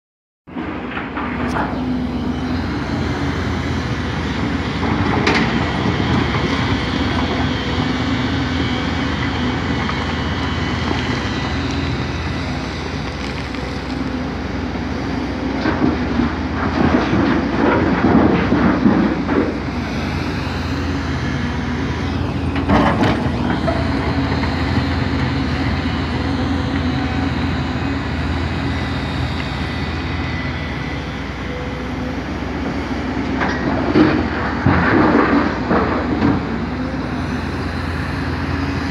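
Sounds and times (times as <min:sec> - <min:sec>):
excavator diesel engine running: 0:00.5 - 0:38.9.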